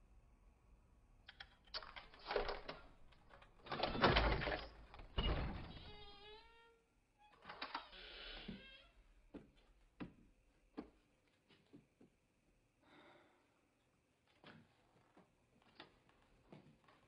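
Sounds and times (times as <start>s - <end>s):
door creak: 1.8s - 9.1s.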